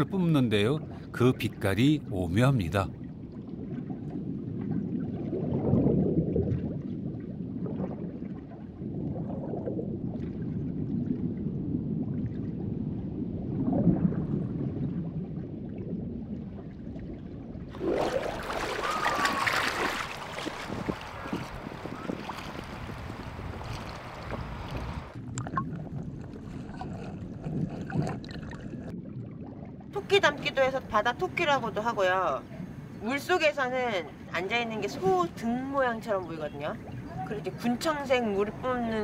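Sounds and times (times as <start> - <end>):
muffled underwater water movement: 0.0 - 39.0
wind on microphone: 3.0 - 29.4
sea waves: 17.7 - 25.4, 30.0 - 39.0.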